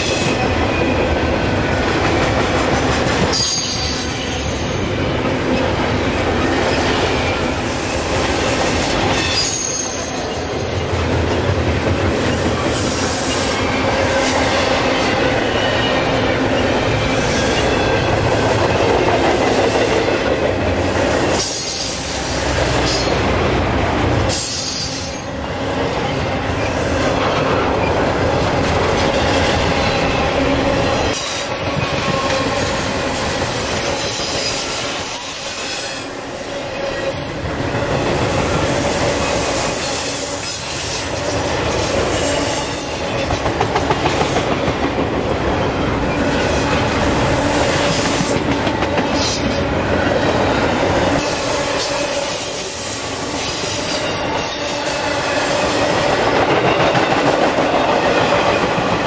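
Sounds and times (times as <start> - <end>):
train wheels clicking over rails: 37.3 - 59.0.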